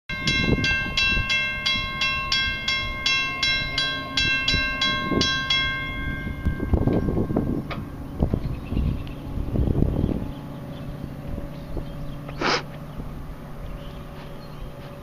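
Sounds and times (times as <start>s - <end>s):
railroad crossing bell ringing: 0.1s - 9.3s
low rumbling noise: 0.1s - 15.0s.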